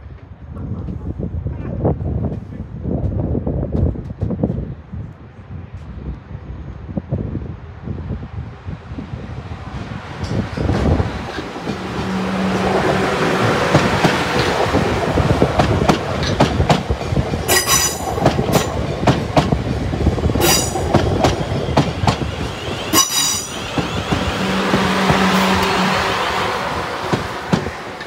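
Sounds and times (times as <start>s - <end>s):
train wheels rumbling: 8.8s - 28.0s.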